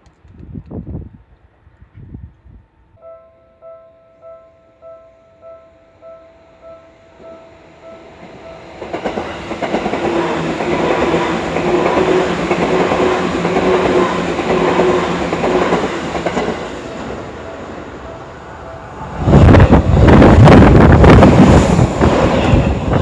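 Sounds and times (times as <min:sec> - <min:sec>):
wind buffeting microphone: 0:00.0 - 0:03.0, 0:18.9 - 0:23.0
train rushing past close: 0:07.0 - 0:23.0
train wheels rumbling on rails: 0:08.2 - 0:23.0.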